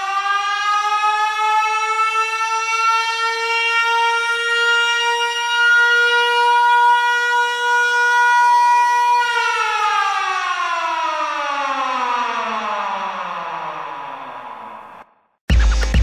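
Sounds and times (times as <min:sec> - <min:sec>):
civil defense siren: 0:00.0 - 0:15.2.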